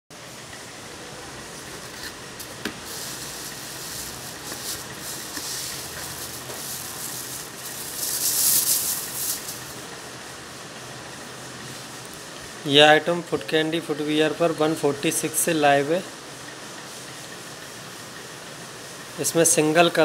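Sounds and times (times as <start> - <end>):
background hiss: 0.2 - 20.0
plastic wrapping crinkling: 1.8 - 9.8.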